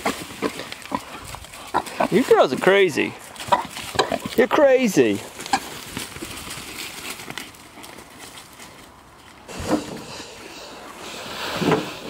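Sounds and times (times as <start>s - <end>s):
pig grunt: 0.0s - 2.4s, 3.4s - 4.5s
footsteps in dry leaves: 0.0s - 9.6s.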